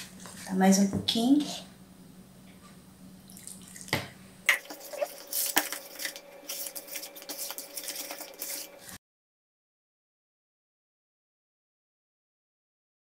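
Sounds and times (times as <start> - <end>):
whisk scraping plastic bowl: 4.5 - 9.0.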